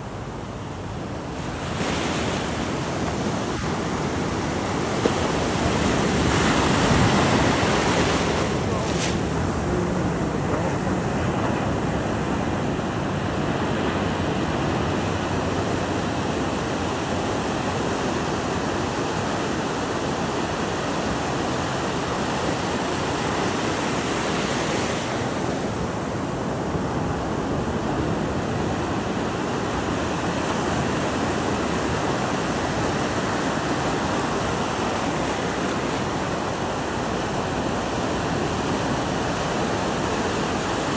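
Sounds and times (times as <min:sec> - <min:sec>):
ocean waves breaking: 0:00.0 - 0:40.9.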